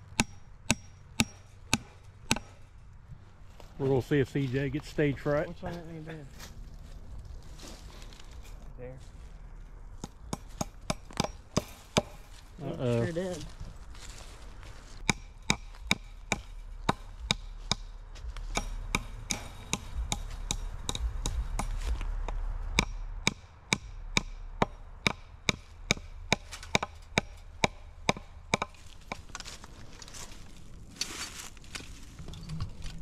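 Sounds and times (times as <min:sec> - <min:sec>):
hammer striking wooden post: 0:00.1 - 0:02.7, 0:10.0 - 0:12.4, 0:15.0 - 0:29.4.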